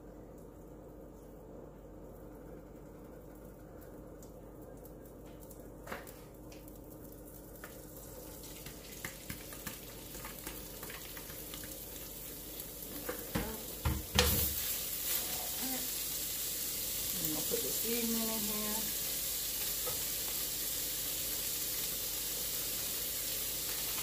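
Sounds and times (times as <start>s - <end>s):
meat sizzling in a frying pan: 6.6s - 24.0s.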